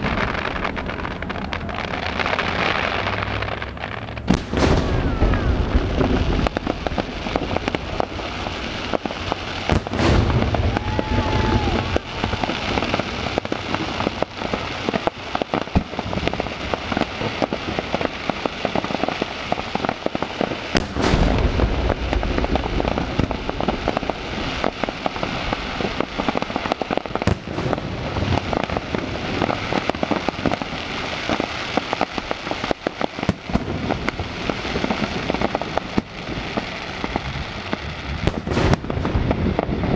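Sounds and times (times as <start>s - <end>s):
fireworks crackling and popping: 0.0s - 39.9s
booming firework shell bursts: 4.3s - 6.6s, 9.7s - 12.4s, 20.8s - 24.1s, 38.2s - 39.4s.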